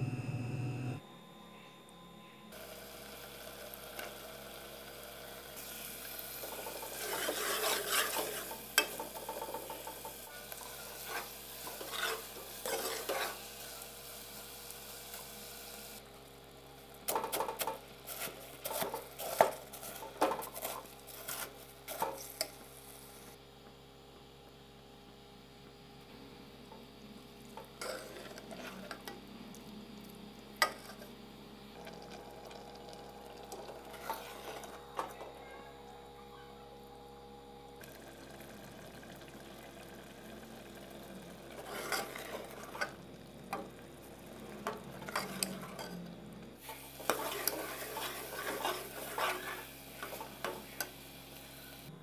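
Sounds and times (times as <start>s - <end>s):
curry sizzling in a pot: 2.6s - 16.0s, 37.9s - 46.0s, 46.6s - 51.9s
ladle scraping metal pot: 6.8s - 9.0s, 11.0s - 13.4s, 41.6s - 43.0s, 44.6s - 46.0s, 47.0s - 50.3s.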